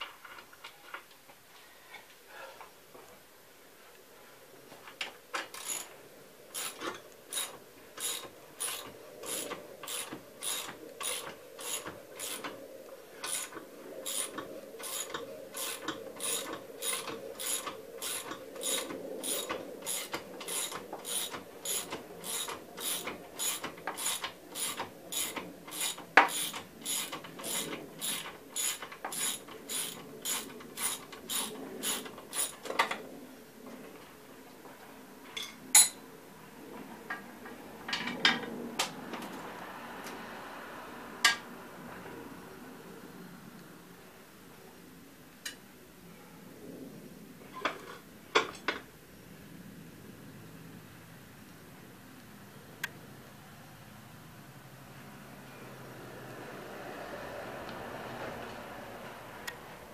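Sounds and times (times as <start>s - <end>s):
ratchet wrench clicking: 5.6s - 5.9s, 6.6s - 12.5s, 14.1s - 32.6s.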